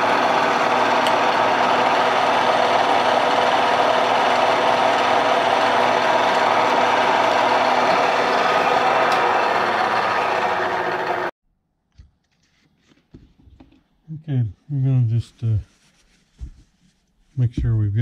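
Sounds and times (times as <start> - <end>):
milling machine drilling metal: 0.0 - 11.3.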